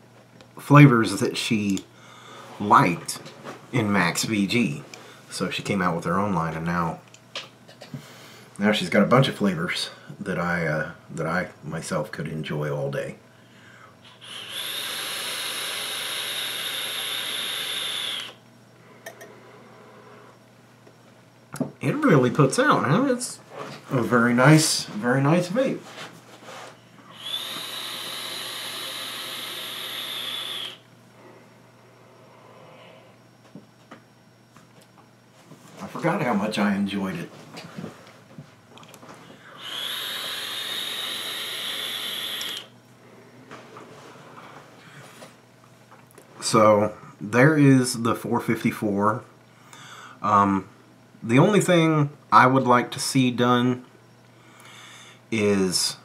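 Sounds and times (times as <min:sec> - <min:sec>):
air hissing through atomizer: 0:14.0 - 0:18.4, 0:27.1 - 0:30.9, 0:39.4 - 0:42.8.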